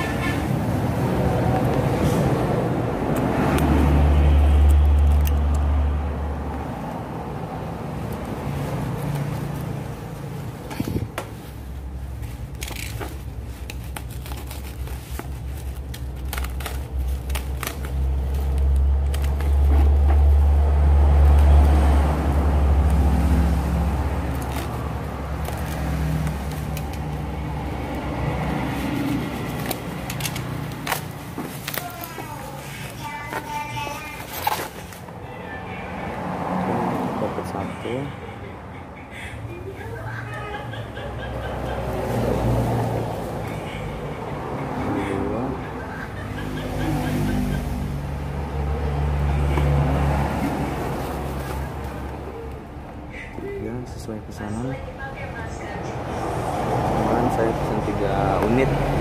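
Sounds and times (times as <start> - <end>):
traffic rumble: 0.0 - 59.0
plastic bag crinkling: 11.3 - 20.6, 22.8 - 35.1.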